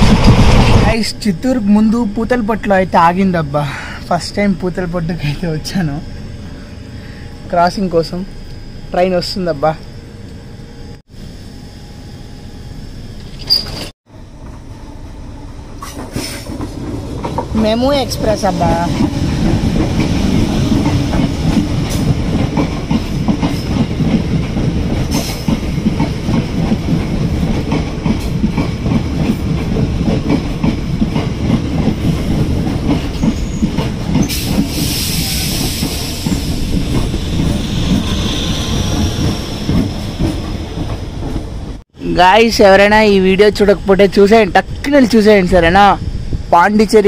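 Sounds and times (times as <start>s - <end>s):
train rumbling past: 0.0s - 47.0s
brief high hiss: 15.8s - 16.5s.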